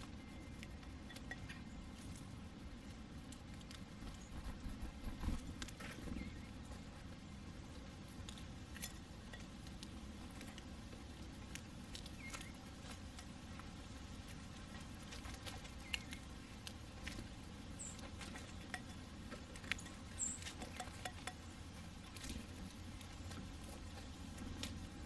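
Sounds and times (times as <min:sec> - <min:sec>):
bird pecking seeds in saucer: 0:08.0 - 0:24.9.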